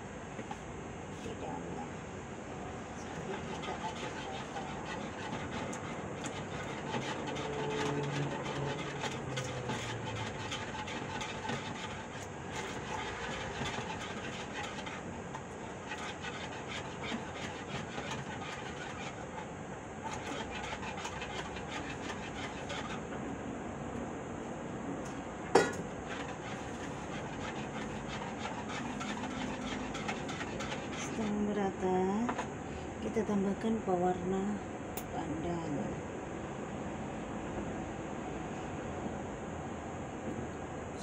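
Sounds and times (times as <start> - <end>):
whisk beating in plastic bowl: 3.0 - 23.1, 25.6 - 32.5.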